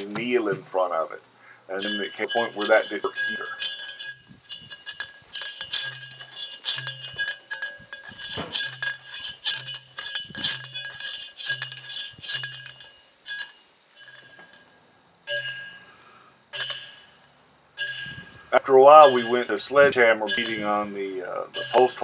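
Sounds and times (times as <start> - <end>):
post driver clanking on metal rod: 1.7 - 14.7, 16.5 - 17.2, 17.8 - 22.0.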